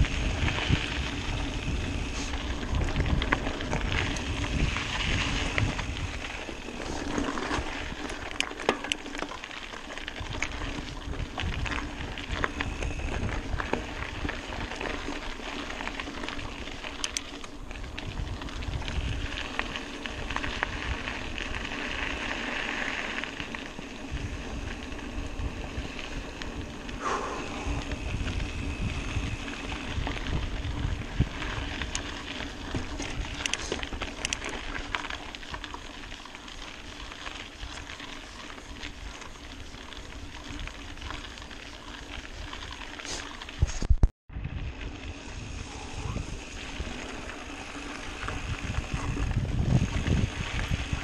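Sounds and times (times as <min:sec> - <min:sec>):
tyres hissing on dirt: 0:00.0 - 0:08.3, 0:11.8 - 0:17.0, 0:18.6 - 0:30.7, 0:42.4 - 0:43.4, 0:45.0 - 0:49.3
wind buffeting microphone: 0:00.0 - 0:08.4, 0:10.0 - 0:15.5, 0:17.6 - 0:23.0, 0:23.6 - 0:35.0, 0:43.5 - 0:51.0
bike clicks and knocks: 0:00.0 - 0:44.1.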